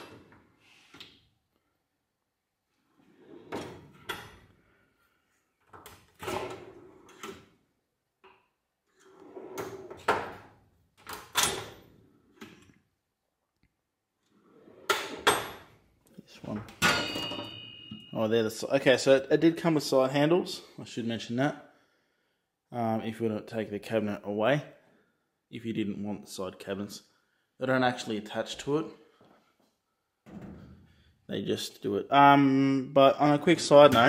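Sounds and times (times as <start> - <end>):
metal drawers sliding and clacking: 3.0 - 4.5, 5.8 - 7.6, 9.0 - 12.7, 14.4 - 15.7.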